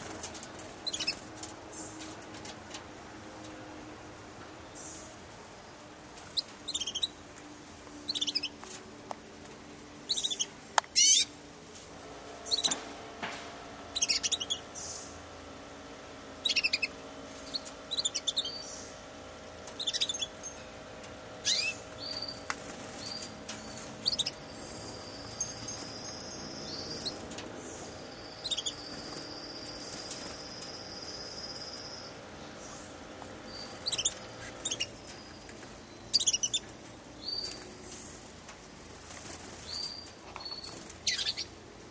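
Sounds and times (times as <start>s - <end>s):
canaries chirping: 0.0s - 2.8s, 6.2s - 7.2s, 7.9s - 8.8s, 10.0s - 11.3s, 12.4s - 12.8s, 13.9s - 15.2s, 16.4s - 41.6s.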